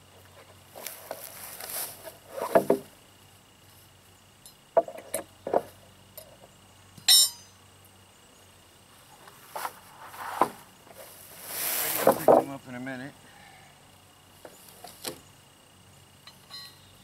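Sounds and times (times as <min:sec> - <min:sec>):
wooden rail knocking and scraping: 0:02.3 - 0:02.9, 0:04.8 - 0:05.8, 0:09.2 - 0:11.1, 0:11.7 - 0:12.6.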